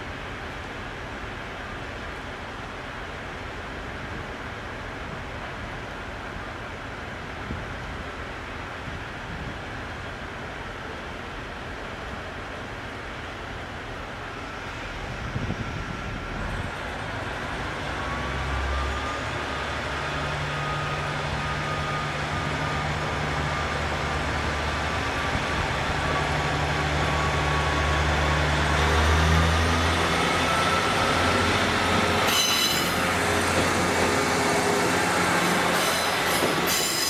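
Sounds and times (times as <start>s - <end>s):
high squeal: 17.9s - 23.7s, 30.0s - 37.0s.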